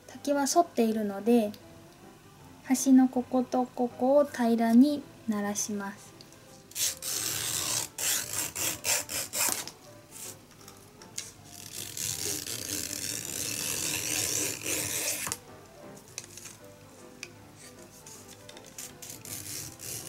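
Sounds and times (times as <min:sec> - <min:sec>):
knife shaving bamboo: 0:06.7 - 0:10.4, 0:11.6 - 0:15.4, 0:17.6 - 0:20.0.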